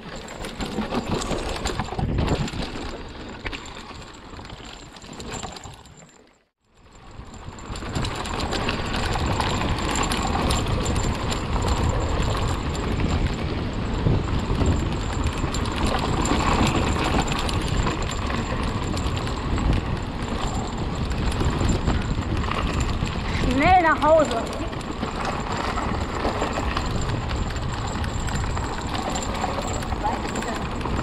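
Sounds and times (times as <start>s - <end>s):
tyres on dirt trail: 0.0s - 31.0s
wind on microphone: 7.0s - 31.0s
bike rattling clicks: 7.1s - 31.0s.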